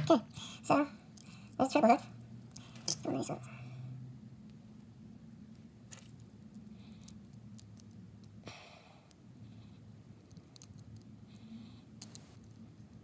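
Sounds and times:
small metallic clicks: 10.2 - 12.6.

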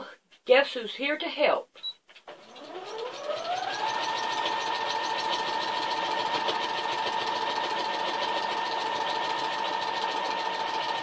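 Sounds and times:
sewing machine motor whine: 2.3 - 11.0.

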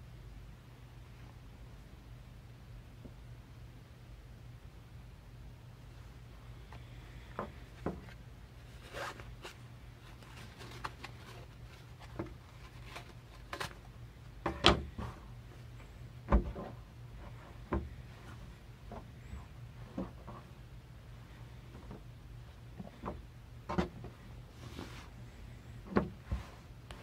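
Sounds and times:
fabric rustling: 7.7 - 13.9
cardboard scraping and clicking: 7.8 - 13.9.

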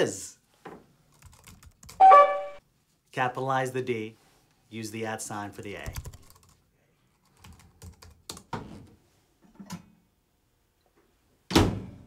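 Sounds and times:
computer keyboard typing: 1.1 - 2.4, 5.8 - 6.6, 7.3 - 8.4.

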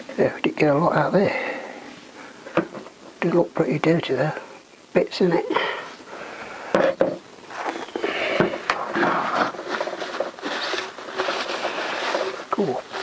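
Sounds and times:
cloth rag rubbing plastic: 8.7 - 13.0.

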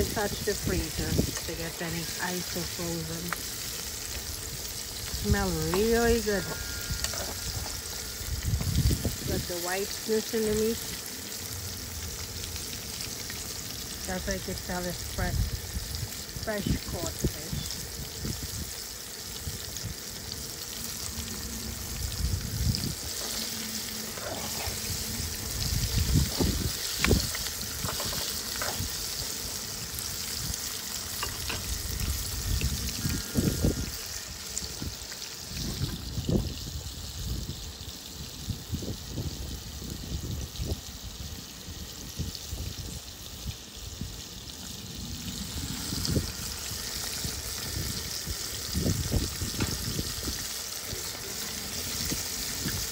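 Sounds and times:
wind buffeting microphone: 0.0 - 1.7, 4.2 - 9.8, 21.7 - 29.2, 31.6 - 37.5, 45.0 - 50.5
oil sizzling and bubbling: 0.0 - 52.9.

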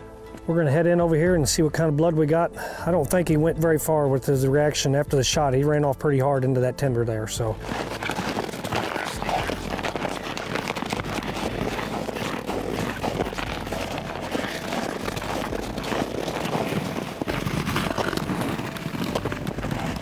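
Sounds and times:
footsteps crunching through snow: 7.4 - 20.0.

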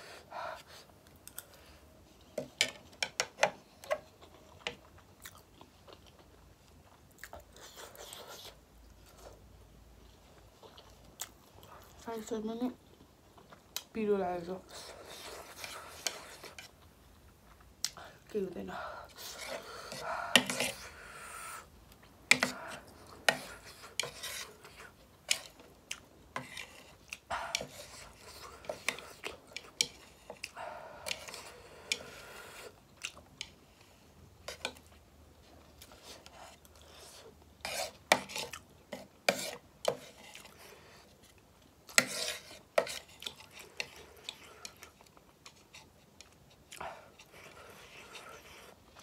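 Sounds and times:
utensils scraping a bowl: 14.7 - 16.7, 19.1 - 21.0, 22.3 - 25.6, 26.4 - 32.7, 36.0 - 40.7, 41.9 - 44.8.

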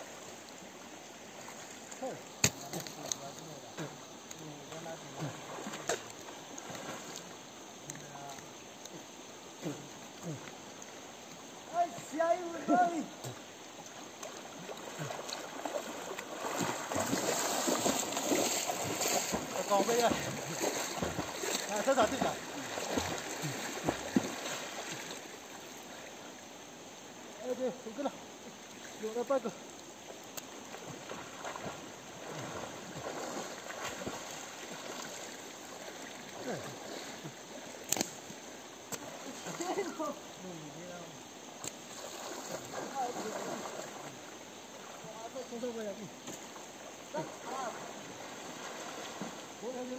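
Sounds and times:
water splashing around waders: 0.0 - 26.6, 27.9 - 40.5, 41.2 - 49.9
people splashing in water: 14.2 - 25.3, 30.8 - 37.3, 47.1 - 49.6
sharp click: 37.9 - 38.2.

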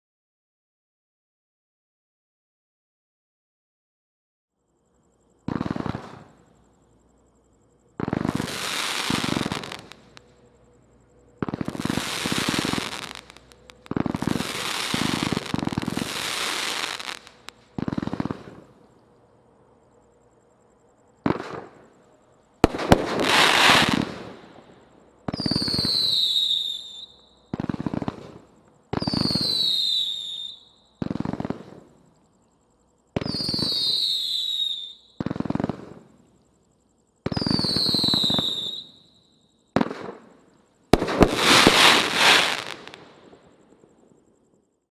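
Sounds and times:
firework whistles sweeping down: 8.0 - 10.3, 11.4 - 18.7, 22.6 - 31.9, 33.2 - 36.2, 37.2 - 40.2, 40.9 - 43.4
firework launch thumps and bursts: 41.0 - 43.1.

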